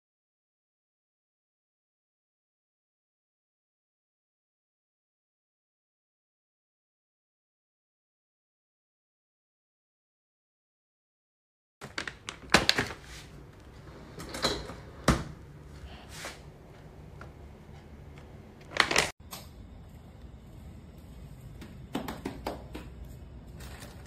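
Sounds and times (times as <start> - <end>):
plastic packaging crinkling: 11.8 - 13.2, 18.6 - 19.1
steady low hum: 13.3 - 24.0.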